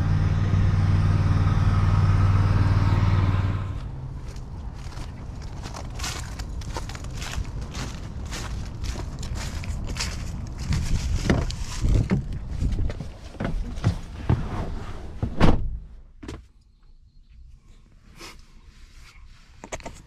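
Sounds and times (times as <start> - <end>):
low wind rumble: 0.0 - 16.0
footsteps: 3.8 - 14.5
vehicle door slamming: 15.2 - 15.8.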